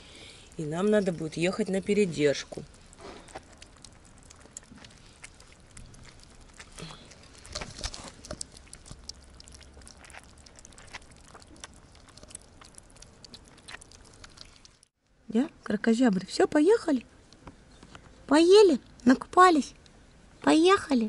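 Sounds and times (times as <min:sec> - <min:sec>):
kittens chewing and smacking: 0:00.0 - 0:14.9.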